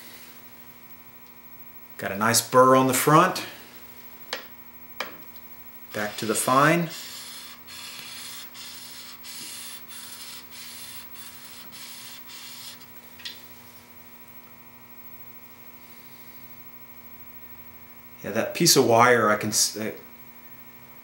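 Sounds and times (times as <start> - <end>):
electrical hum: 0.0 - 21.0
chisel rubbing on sharpening stone: 6.1 - 12.9.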